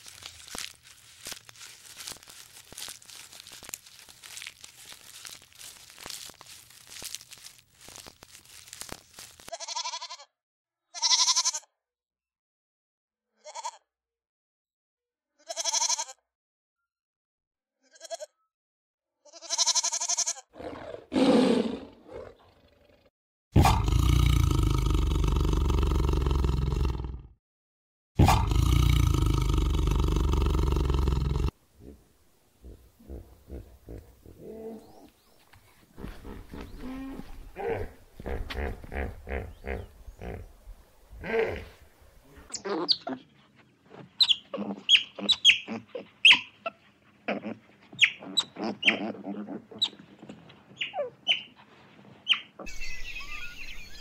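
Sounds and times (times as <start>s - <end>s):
goat bleating: 9.5s - 10.3s, 11.0s - 11.7s, 13.4s - 13.8s, 15.4s - 16.2s, 17.8s - 18.4s, 19.3s - 20.5s
tiger grunting: 20.6s - 27.2s, 28.2s - 35.1s, 35.9s - 40.5s, 41.1s - 43.3s, 44.5s - 50.0s
tiger roaring: 20.6s - 27.3s, 28.2s - 35.0s.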